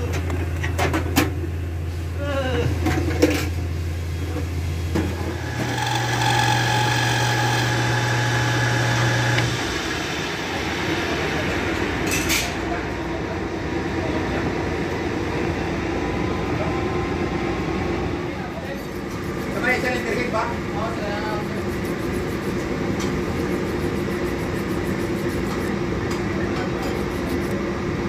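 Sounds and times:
lathe motor humming: 5.2 - 10.7.

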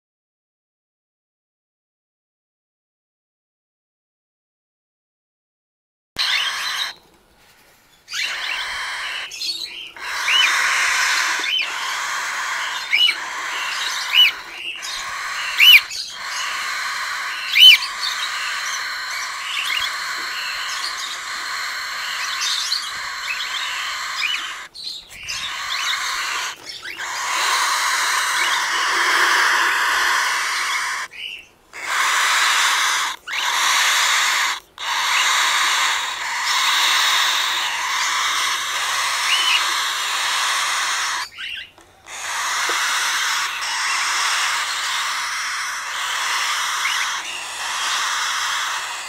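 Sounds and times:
nestlings raspy hissing chorus: 6.2 - 7.0, 8.1 - 49.0
sharp squeaky bird calls: 6.2 - 7.0, 8.1 - 49.0.

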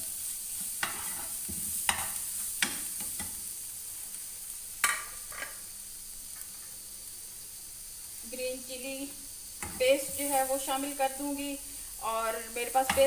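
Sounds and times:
onions sizzling in oil: 0.0 - 13.0
spatula scraping and knocking pan: 0.6 - 3.4.

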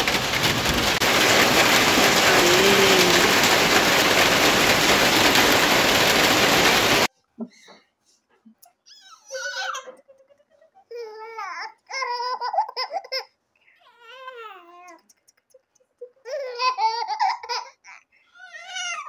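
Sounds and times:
rain falling: 0.0 - 7.1.

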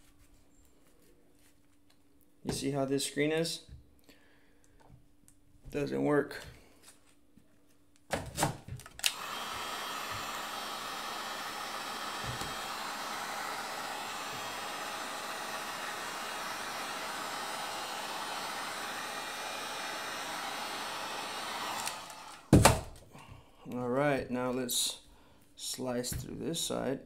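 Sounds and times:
heat gun blowing: 9.0 - 23.0.

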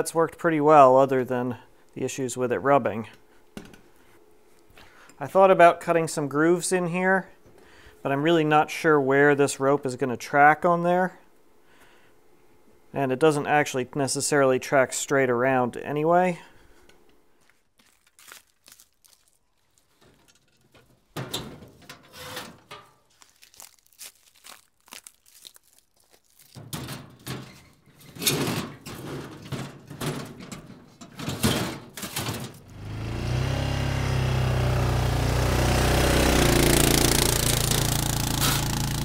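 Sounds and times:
engine running loudly: 32.7 - 39.0.

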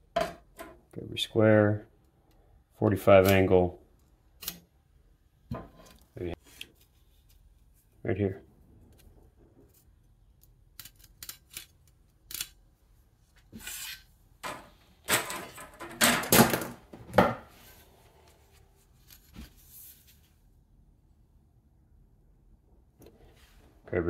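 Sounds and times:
metal clattering on workbench: 14.4 - 17.4.

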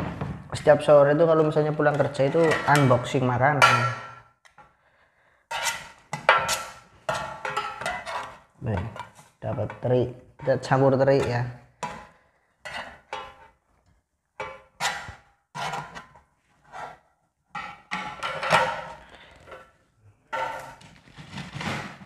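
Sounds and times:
utensils scraping ceramic plate: 1.9 - 3.9, 5.5 - 13.5, 14.4 - 17.0, 20.3 - 21.8
utensils knocking on metal pan: 3.6 - 4.2.

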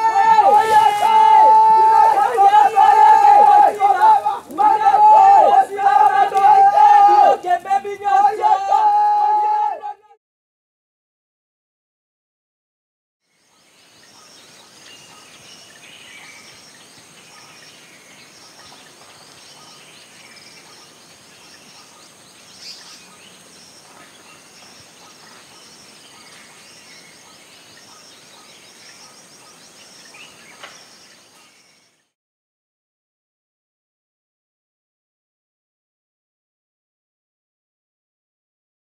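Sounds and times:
birds chirping: 13.3 - 32.1.

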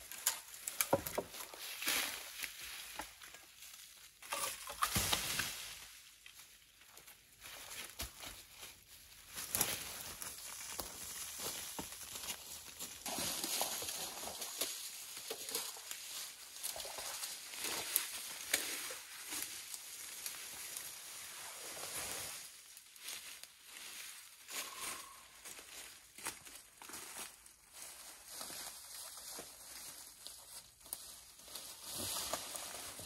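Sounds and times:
dry leaves crunching underfoot: 0.1 - 33.0
branch dragged through leaves: 13.0 - 25.6.

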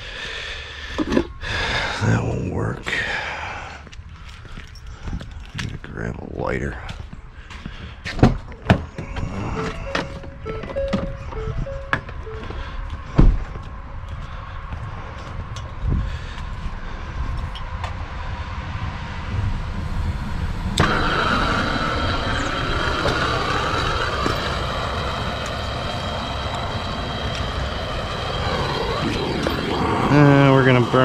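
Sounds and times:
low rumble: 9.1 - 31.0
torch flame hissing: 19.3 - 31.0
torch lighting pop: 20.8 - 27.6.

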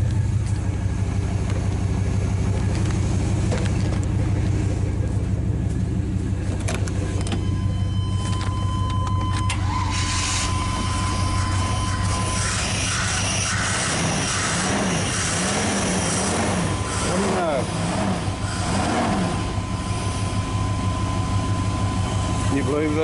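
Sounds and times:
car engine idling: 0.0 - 23.0
steady high tone: 7.1 - 23.0.

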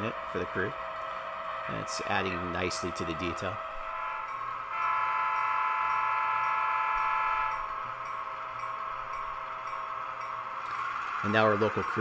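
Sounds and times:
low steady hum: 0.0 - 10.8
model locomotive horn blast: 3.9 - 7.7.

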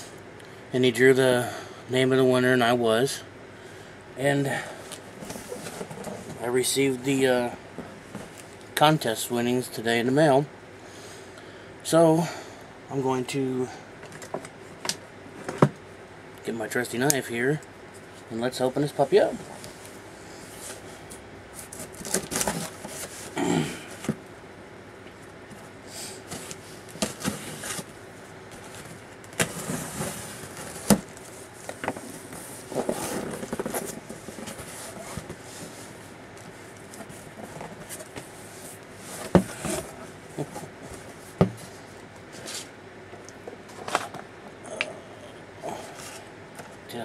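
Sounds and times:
cardboard and packing rustling: 4.8 - 6.6, 19.1 - 24.2, 25.4 - 42.8.

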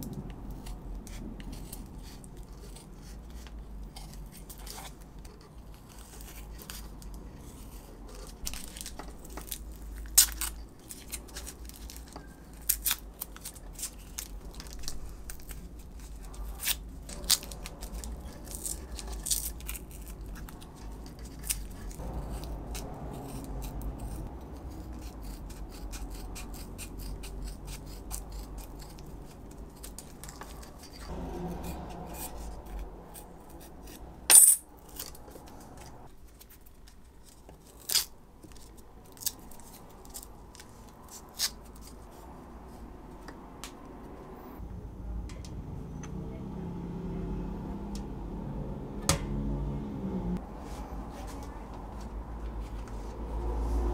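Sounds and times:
masking tape crinkling: 0.0 - 34.1.

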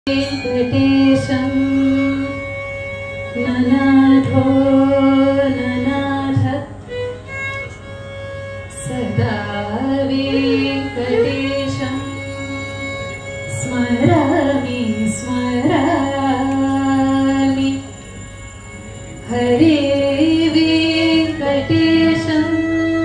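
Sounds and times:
violin: 0.0 - 23.0
woman singing: 0.1 - 2.4, 3.4 - 6.8, 8.7 - 12.6, 13.5 - 17.9, 19.3 - 23.0.

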